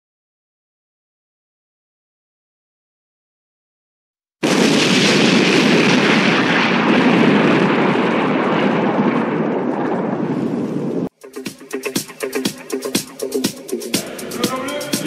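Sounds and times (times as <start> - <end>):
rumbling explosion: 4.4 - 11.1
song beat: 11.1 - 15.0.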